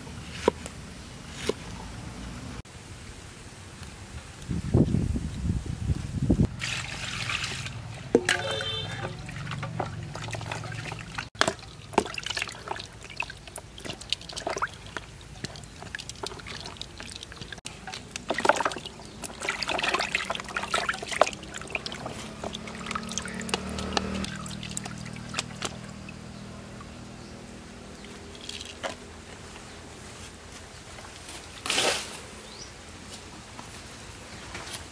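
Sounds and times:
water sloshing and splashing: 0:06.5 - 0:27.0, 0:27.8 - 0:29.4
water pouring into plastic basin: 0:06.6 - 0:25.8.

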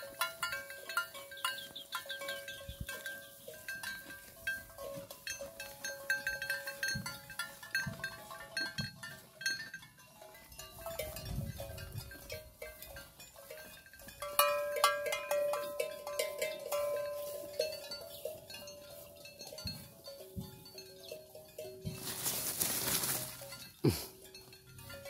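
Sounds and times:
cattle bells clanking: 0:00.0 - 0:25.0.

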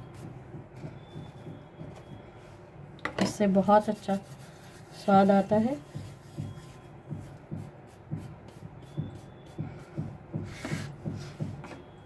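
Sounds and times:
soft low thumps: 0:00.0 - 0:02.4, 0:05.5 - 0:12.0.

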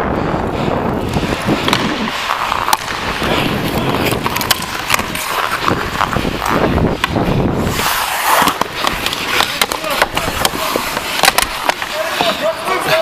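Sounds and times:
skates scraping on ice: 0:00.2 - 0:13.0
hockey sticks clacking: 0:00.6 - 0:13.0.

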